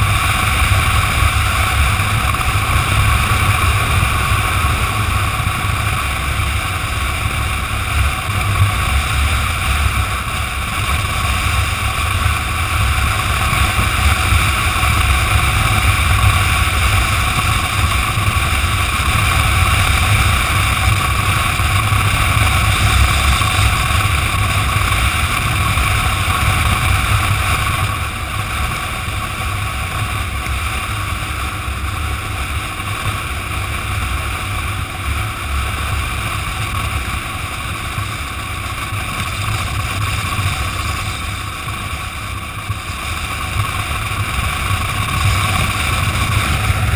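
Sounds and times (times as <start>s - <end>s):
motorcycle engine: 0.0s - 46.9s
wind buffeting microphone: 37.7s - 46.9s.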